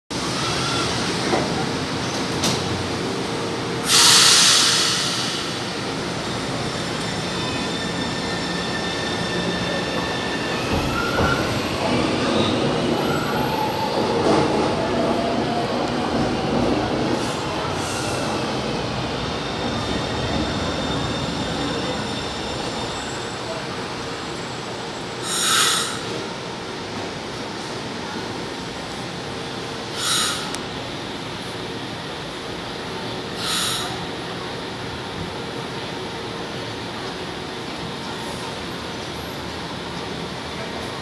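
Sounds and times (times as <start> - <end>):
train wheels rumbling on rail: 0.2 - 41.0
air hiss of train doors: 3.8 - 11.5, 25.1 - 26.3, 29.8 - 30.8, 33.3 - 34.2.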